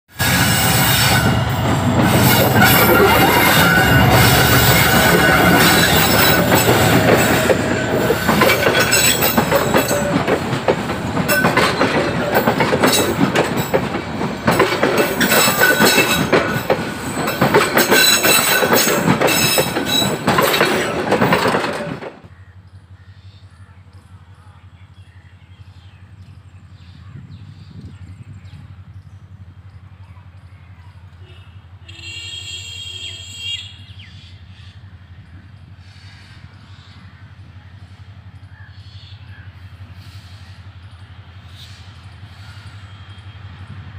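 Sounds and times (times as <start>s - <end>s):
metallic squealing: 0.2s - 13.8s, 14.5s - 22.0s
train wheels clattering: 0.2s - 27.0s.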